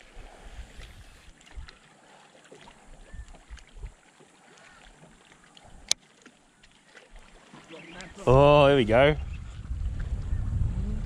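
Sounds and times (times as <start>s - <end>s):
water lapping against boat: 0.0s - 10.3s.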